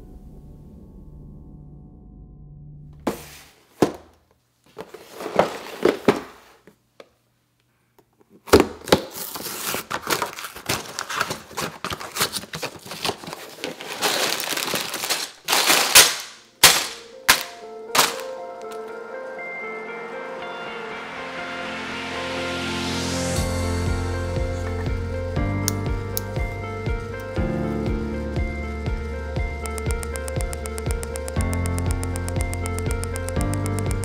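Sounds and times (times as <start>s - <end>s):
music: 0.0s - 3.1s, 16.6s - 34.0s
cardboard box tearing: 8.9s - 16.1s.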